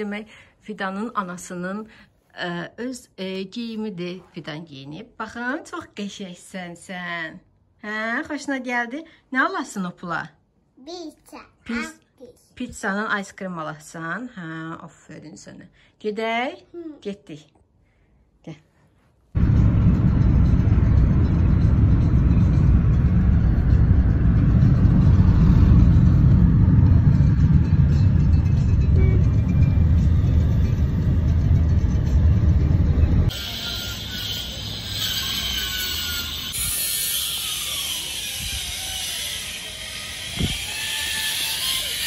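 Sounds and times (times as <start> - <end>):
outdoor street ambience: 19.4 - 42.0.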